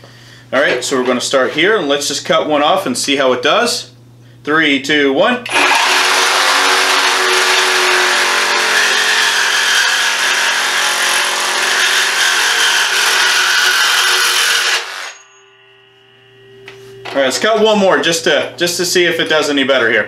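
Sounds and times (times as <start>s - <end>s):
reciprocating saw cutting metal: 5.5s - 15.6s.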